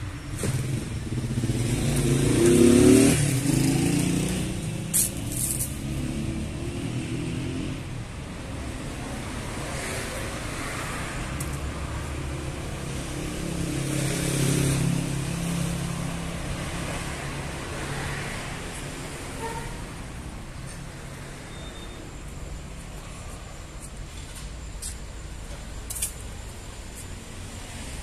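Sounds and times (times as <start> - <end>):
street traffic: 0.0 - 28.0
vehicle engine passing: 0.6 - 7.9.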